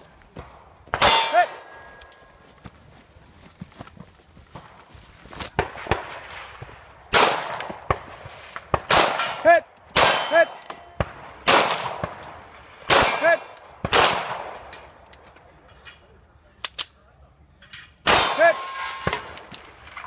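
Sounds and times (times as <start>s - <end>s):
pistol shots: 7.1s - 14.7s.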